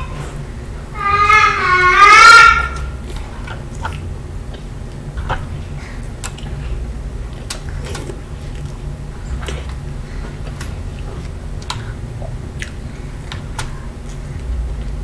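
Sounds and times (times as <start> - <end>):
child squealing: 1.0 - 3.0
chewing and mouth noises: 3.0 - 15.0.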